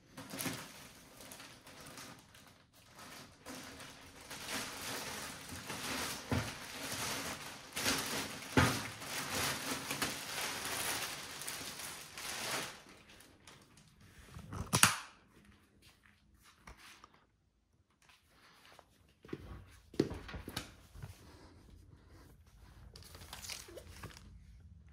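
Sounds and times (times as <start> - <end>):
packaging rustling: 0.1 - 14.8, 22.8 - 24.8.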